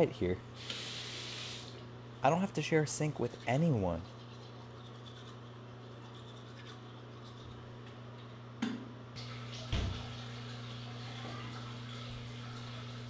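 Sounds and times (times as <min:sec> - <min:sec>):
steady low hum: 0:00.0 - 0:13.0
toothbrush scrubbing teeth: 0:02.7 - 0:08.0.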